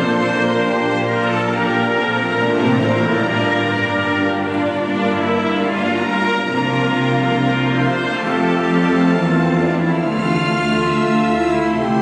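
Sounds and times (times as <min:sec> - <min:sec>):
orchestra playing film music: 0:00.0 - 0:12.0.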